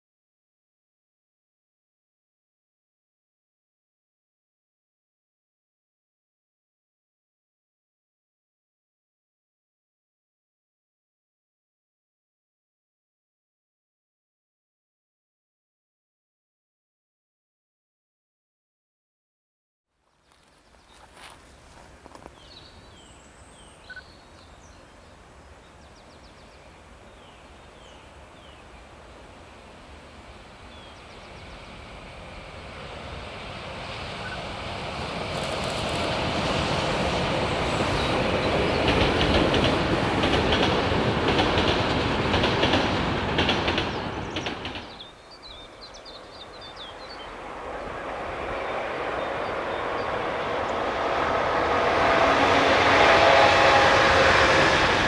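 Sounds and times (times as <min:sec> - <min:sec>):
another train approaching: 0:20.2 - 0:55.0
electric train passing: 0:20.7 - 0:55.0
train wheels clattering over rail joints: 0:37.9 - 0:45.1.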